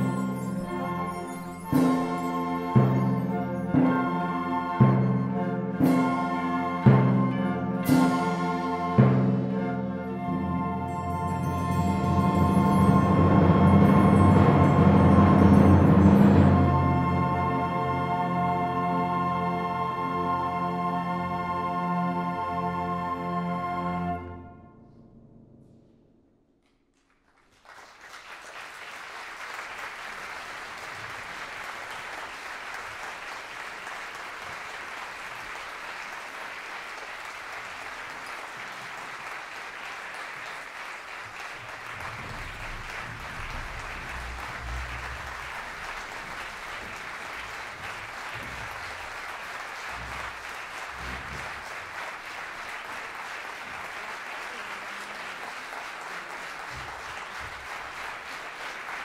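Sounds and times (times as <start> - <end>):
audience applauding: 26.9 - 59.0.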